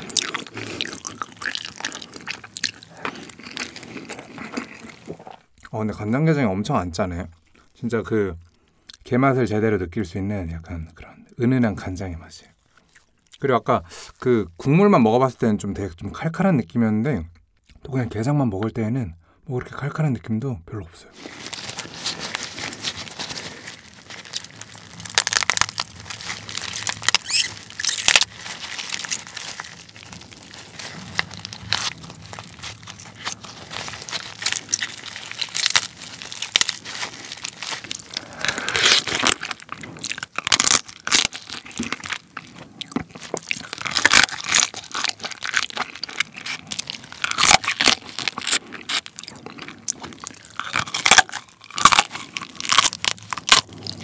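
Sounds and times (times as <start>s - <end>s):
crab shell cracking: 0.0s - 5.4s, 21.3s - 54.0s
teeth crunching shell: 0.0s - 5.8s, 21.3s - 54.0s.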